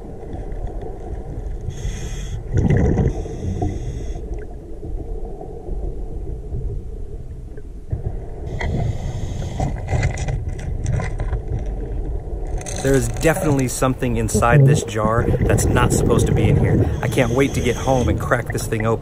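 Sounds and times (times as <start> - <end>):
low underwater rumble: 0.0 - 19.0
exhaled bubbles underwater: 2.5 - 6.0, 13.2 - 19.0.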